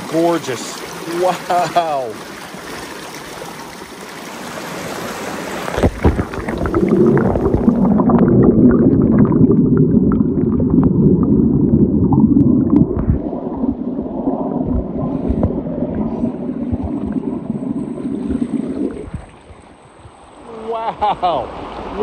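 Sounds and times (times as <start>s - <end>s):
microphone knocking and splashing: 5.7s - 9.8s, 12.0s - 13.4s, 14.6s - 17.3s
muffled underwater water gurgling: 5.7s - 20.5s.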